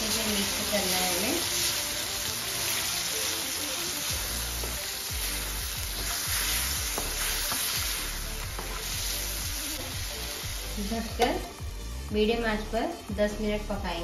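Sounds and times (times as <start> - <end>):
curry sizzling in a pan: 0.0 - 14.0
spatula scraping and knocking pan: 6.0 - 9.0.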